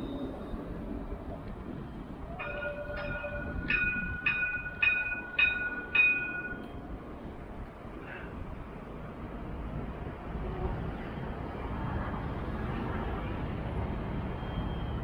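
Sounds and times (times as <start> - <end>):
tram warning bell ringing: 0.0 - 7.3.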